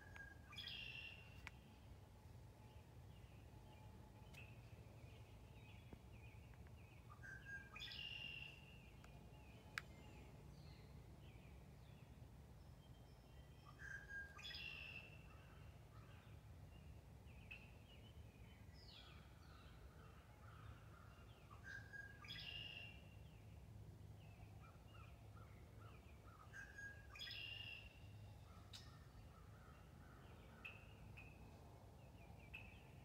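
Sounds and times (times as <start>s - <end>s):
soft bird chirps: 0.0s - 1.9s.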